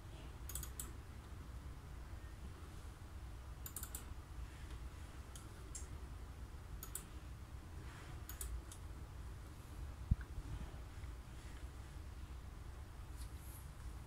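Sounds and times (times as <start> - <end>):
faint low hum: 0.0 - 14.0
computer mouse buttons clicking: 0.4 - 1.0, 3.6 - 4.1, 6.8 - 7.1, 8.2 - 8.8.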